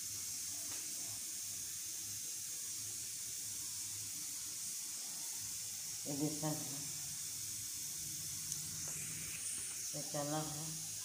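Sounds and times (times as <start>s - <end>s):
steady high hiss: 0.0s - 11.0s.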